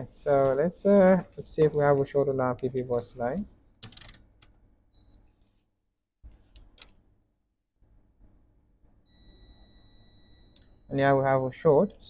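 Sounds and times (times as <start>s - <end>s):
multimeter continuity beep: 4.9s - 5.2s, 9.1s - 10.9s.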